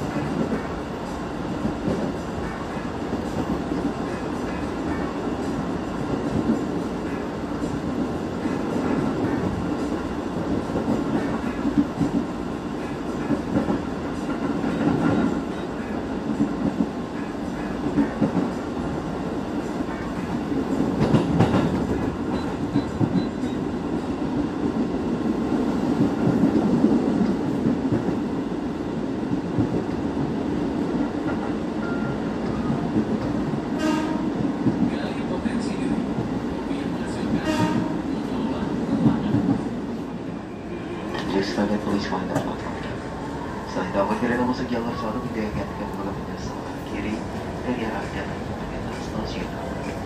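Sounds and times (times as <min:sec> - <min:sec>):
train wheels rumbling on rails: 0:00.0 - 0:50.0
clacks over rail joints: 0:19.9 - 0:23.6, 0:41.1 - 0:43.0.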